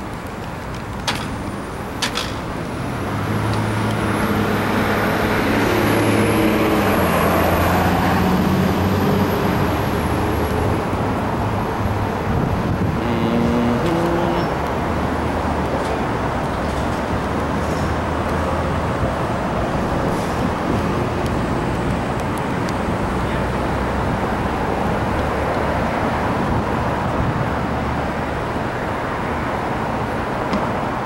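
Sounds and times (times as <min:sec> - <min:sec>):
street traffic: 0:00.0 - 0:31.0
vehicle engine humming: 0:00.0 - 0:31.0.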